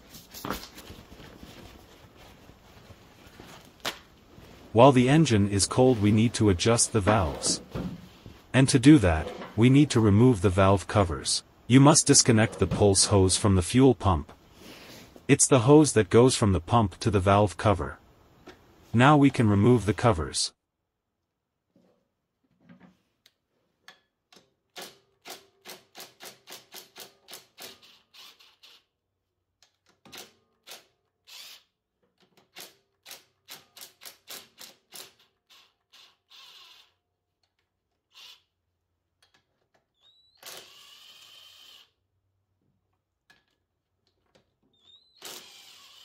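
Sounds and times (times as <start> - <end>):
driver motor spinning freely: 40.5 - 41.9, 45.2 - 46.0.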